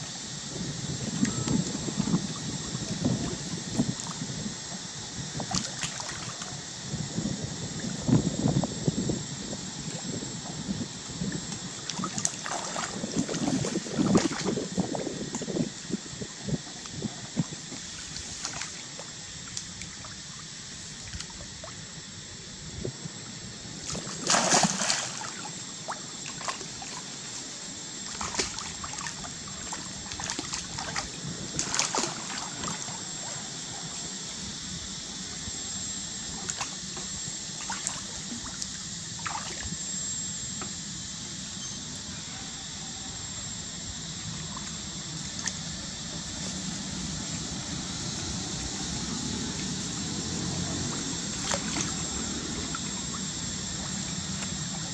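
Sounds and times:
water splashing and sloshing: 5.4s - 6.6s, 9.8s - 15.6s, 16.8s - 21.8s, 23.8s - 34.0s, 36.3s - 39.8s, 44.2s - 46.4s, 49.9s - 54.9s.

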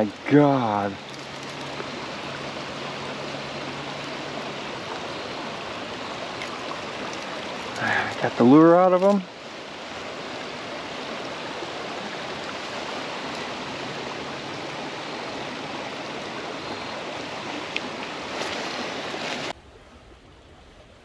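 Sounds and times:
creek water rushing over rocks: 0.0s - 21.0s.

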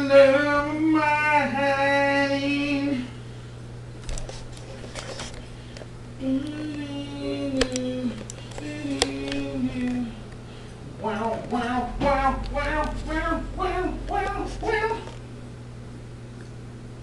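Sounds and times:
man singing long held notes: 6.2s - 10.3s, 11.0s - 15.2s.

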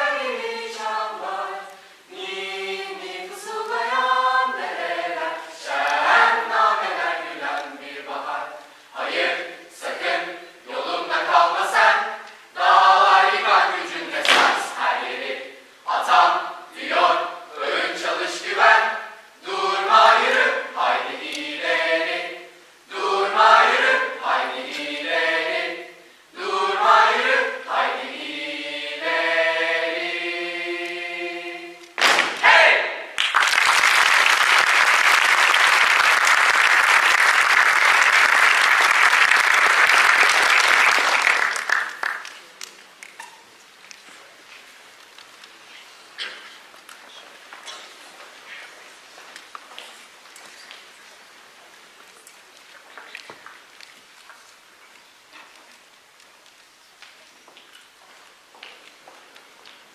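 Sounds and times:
choir singing a cappella: 0.0s - 33.2s.

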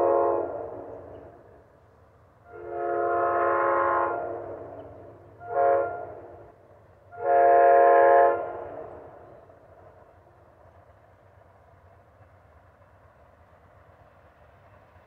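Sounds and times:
train horn blasts: 0.0s - 1.1s, 2.4s - 9.2s.

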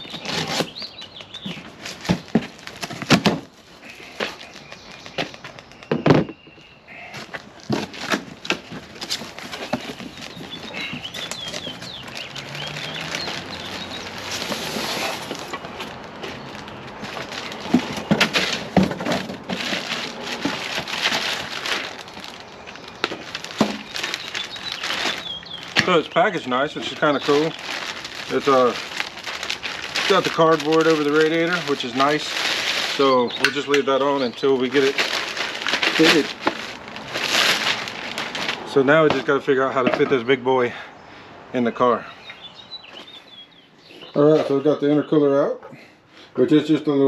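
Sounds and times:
cardboard box scuffing and crackling: 0.0s - 5.5s, 7.2s - 26.1s, 34.7s - 39.2s
knocks of box being moved: 7.1s - 11.8s, 17.0s - 21.5s.

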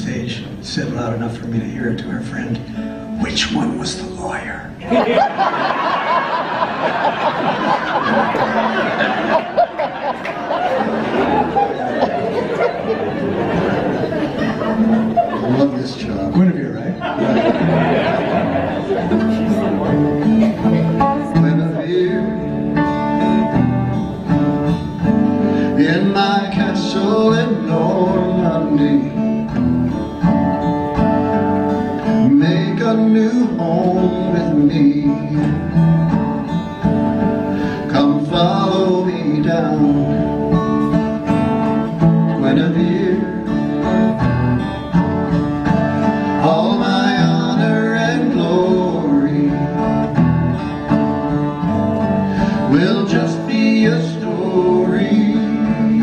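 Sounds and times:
acoustic guitars playing folk song: 0.0s - 56.0s
man singing: 19.8s - 22.8s, 25.6s - 29.5s, 32.0s - 35.9s, 37.7s - 40.7s, 41.9s - 44.0s, 46.3s - 50.2s, 52.4s - 56.0s.

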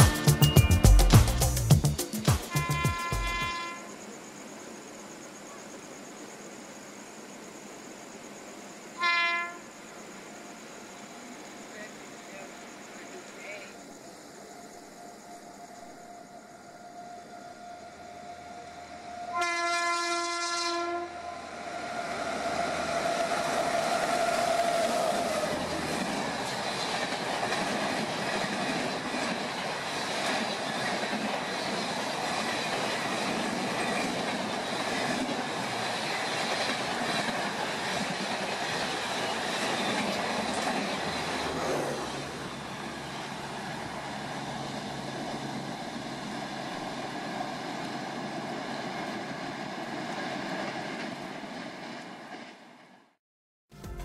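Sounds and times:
high whine from train wheels: 0.0s - 5.2s, 7.3s - 53.1s
train wheels rumbling and clattering: 22.4s - 52.8s.

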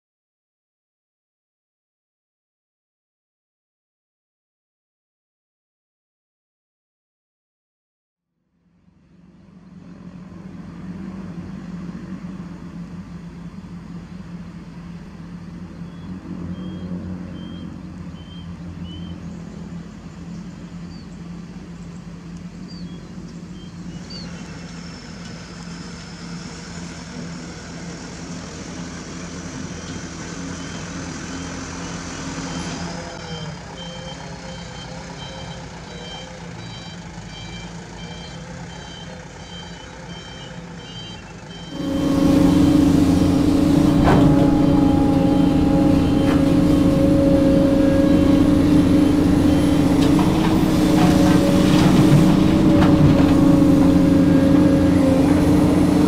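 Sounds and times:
diesel engines running: 8.8s - 56.0s
reversing alarm beeping: 29.8s - 56.0s.

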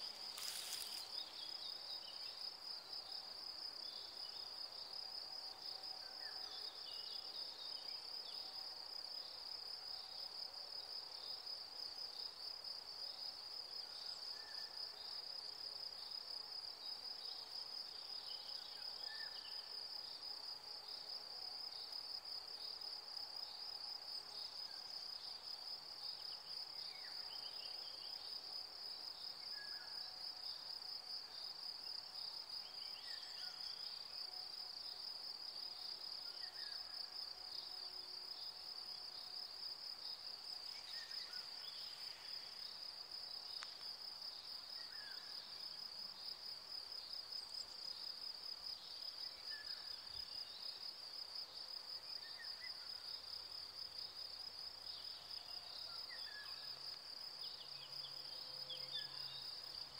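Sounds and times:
crickets trilling: 0.0s - 2.8s.

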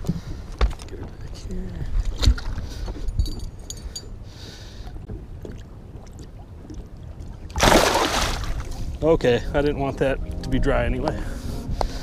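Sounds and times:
fish splashing water: 7.5s - 8.7s.

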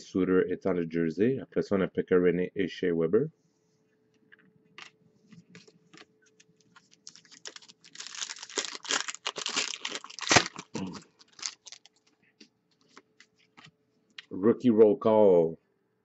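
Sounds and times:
plastic wrapper crinkling: 4.8s - 13.7s
wrapper snapping: 6.6s - 12.1s.

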